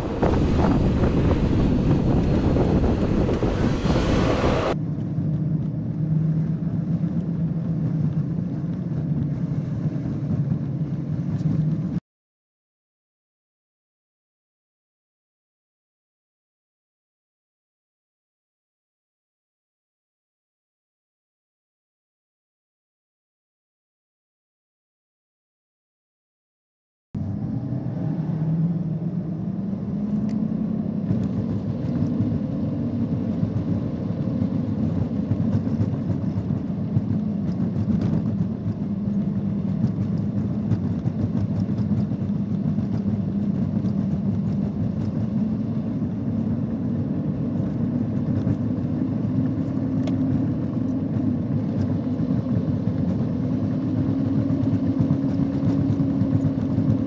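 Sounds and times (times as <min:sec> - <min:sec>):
car engine running: 0:00.0 - 0:04.8
tyre and road noise: 0:00.0 - 0:12.0.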